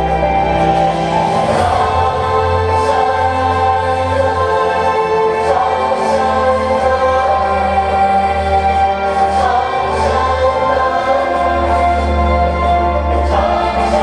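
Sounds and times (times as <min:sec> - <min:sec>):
choir singing held chords: 0:00.0 - 0:14.0.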